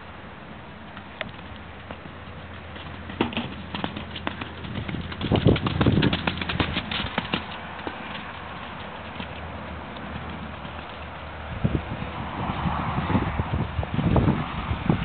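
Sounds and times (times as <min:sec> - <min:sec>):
pony hoofbeats: 0:00.9 - 0:11.4.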